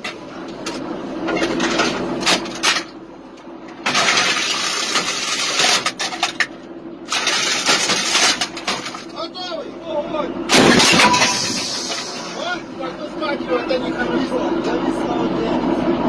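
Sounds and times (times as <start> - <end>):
machinery humming: 0.0 - 16.0
sharp metal clanks: 10.5 - 12.6
loud rushing noise: 10.5 - 14.2.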